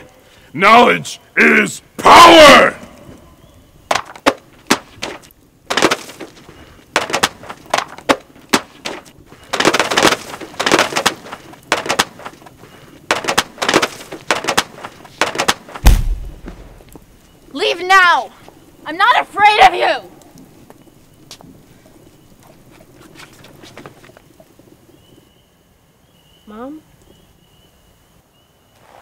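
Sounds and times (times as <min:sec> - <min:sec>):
fire crackling and popping: 0:00.0 - 0:29.0
flames rushing: 0:00.2 - 0:26.3
deep thump: 0:15.8 - 0:16.8.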